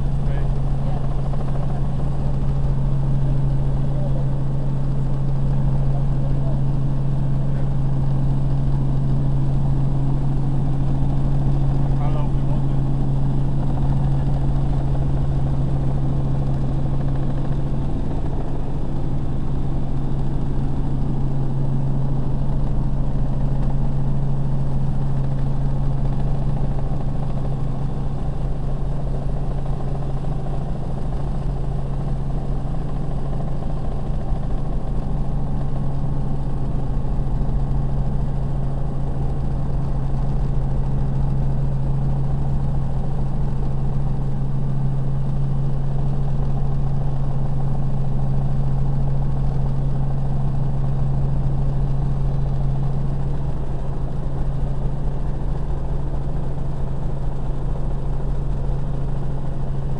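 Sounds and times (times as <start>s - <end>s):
helicopter engine and rotor drone: 0.0s - 59.9s.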